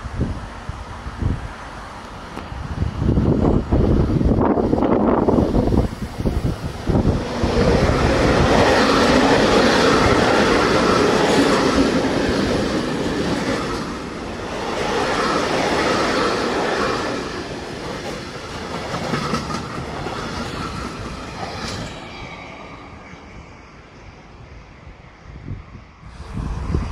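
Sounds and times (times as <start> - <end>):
train wheels clattering on rails: 4.7 - 22.3.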